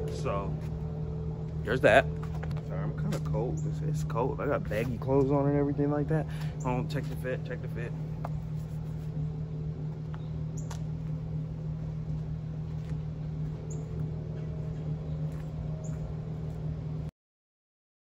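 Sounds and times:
car engine idling: 0.0s - 17.1s.

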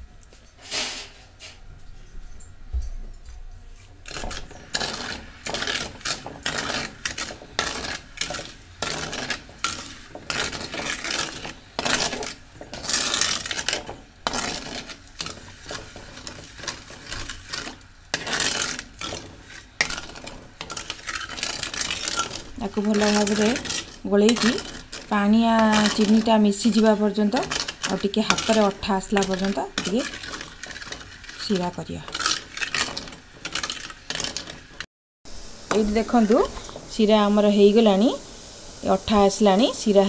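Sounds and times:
ladle scraping metal pot: 4.0s - 34.9s.

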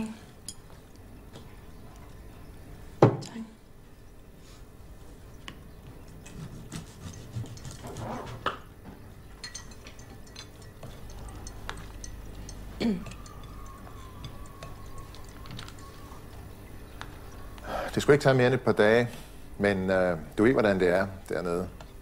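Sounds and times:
low hum: 0.0s - 18.8s
cutlery and crockery clinking: 6.3s - 8.7s, 9.3s - 15.8s.

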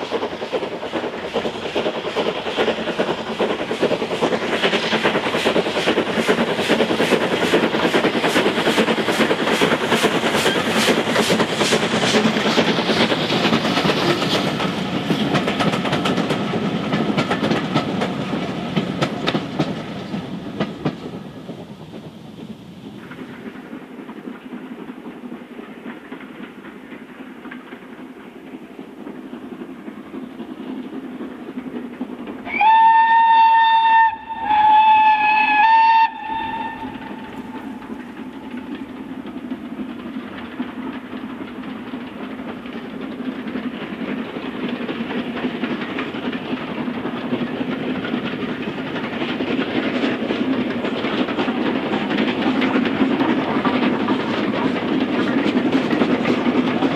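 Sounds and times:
steam locomotive running: 0.0s - 56.9s
steam whistle blasts: 32.5s - 37.6s.

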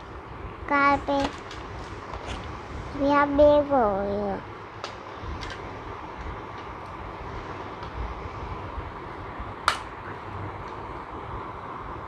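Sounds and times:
low background hum: 0.0s - 12.0s
sharp plastic snap: 9.7s - 9.9s.

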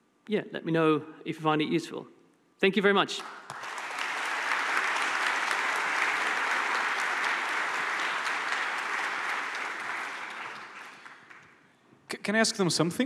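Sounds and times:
audience applauding: 3.2s - 11.6s.

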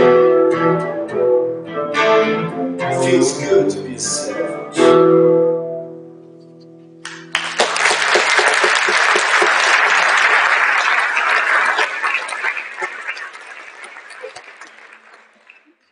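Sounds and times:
guitar chord ringing: 0.0s - 7.0s
audience applauding: 7.0s - 15.9s.

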